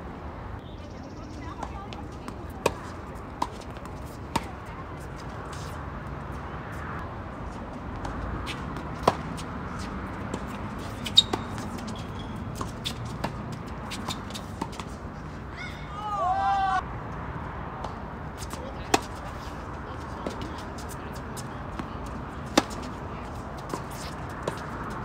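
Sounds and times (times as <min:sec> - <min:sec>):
tennis balls bouncing on court: 0:01.3 - 0:06.4, 0:07.5 - 0:16.0, 0:17.8 - 0:25.0
tennis balls struck by rackets: 0:01.4 - 0:05.8, 0:07.9 - 0:15.5, 0:17.8 - 0:25.0.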